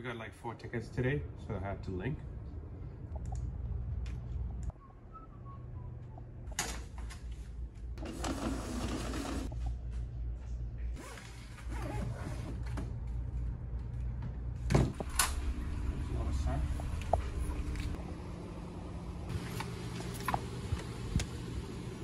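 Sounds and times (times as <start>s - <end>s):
steady low hum: 0.0s - 8.4s, 9.4s - 22.0s
printer feeding paper: 8.0s - 9.5s.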